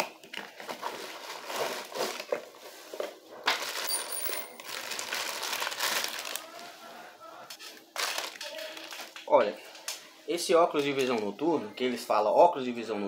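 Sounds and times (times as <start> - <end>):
plastic and cardboard crinkling: 0.0 - 10.0.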